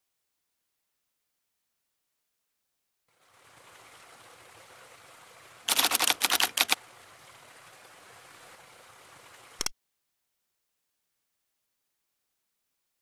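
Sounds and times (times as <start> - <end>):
waterfall splashing onto rocks: 3.6 - 6.8
rapid mechanical clicks: 5.7 - 6.8.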